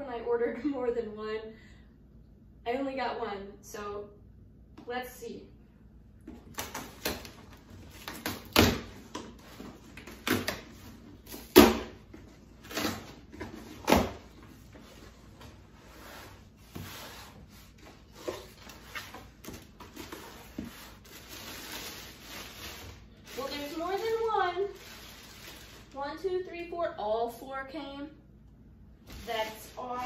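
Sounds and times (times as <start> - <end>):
packing tape and cardboard ripping: 6.5 - 12.0, 12.6 - 14.4, 18.4 - 26.0.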